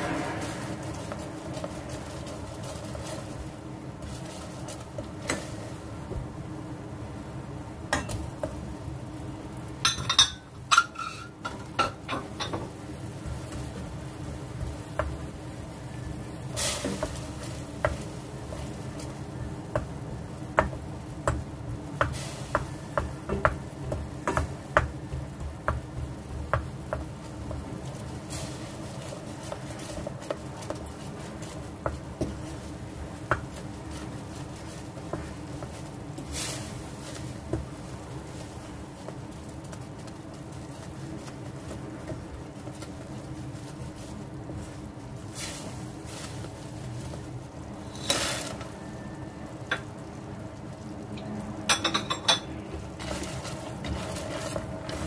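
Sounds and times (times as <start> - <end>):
steady low hum: 0.0 - 48.0
utensil stirring in a pan: 9.6 - 48.8, 49.4 - 55.0.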